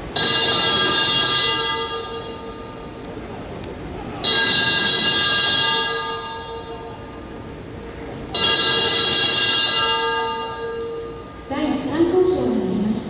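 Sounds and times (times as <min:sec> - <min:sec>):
bell ringing: 0:00.2 - 0:03.0, 0:04.2 - 0:07.5, 0:08.3 - 0:11.7.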